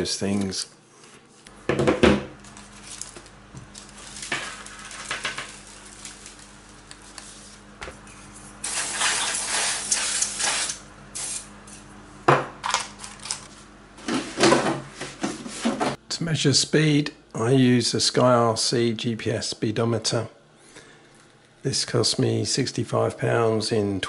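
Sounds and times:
canned air duster hissing: 7.0s - 11.6s.

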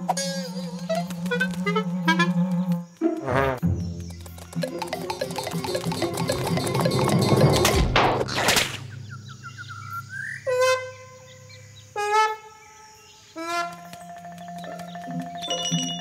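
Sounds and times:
rising chirps: 3.2s - 7.8s.

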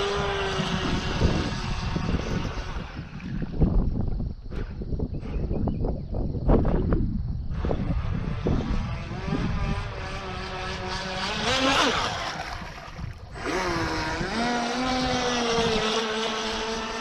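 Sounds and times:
model boat motor whining: 0.0s - 3.5s, 7.5s - 17.0s
wind buffeting microphone: 0.0s - 17.0s.

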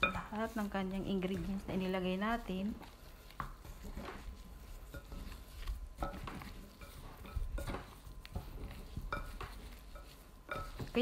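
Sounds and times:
hand kneading meat: 0.0s - 11.0s.

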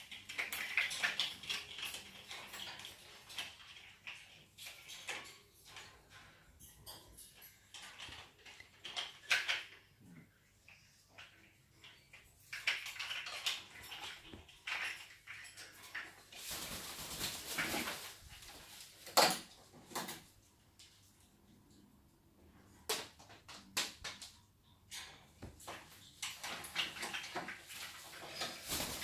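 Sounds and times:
macaws scraping and clicking on perches: 0.0s - 21.9s, 22.9s - 29.0s.

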